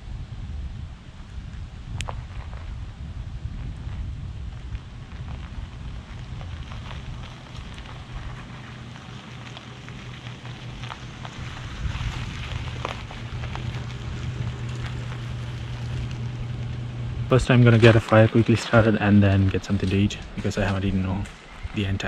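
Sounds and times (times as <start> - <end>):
tires rolling over gravel: 0.5 - 22.0
pickup truck engine running: 3.4 - 22.0
rain: 3.8 - 19.7.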